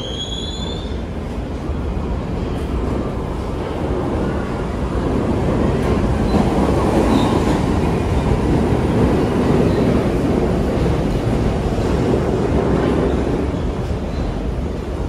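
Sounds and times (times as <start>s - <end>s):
faint short squeal: 0.0s - 1.0s
train wheels rumbling on rails: 0.0s - 15.0s.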